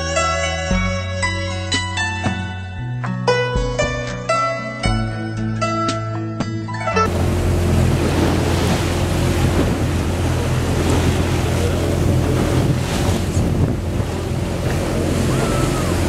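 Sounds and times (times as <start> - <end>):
choppy sea and surf: 6.7 - 16.0
boat motor humming: 6.8 - 16.0
wind buffeting microphone: 7.1 - 16.0.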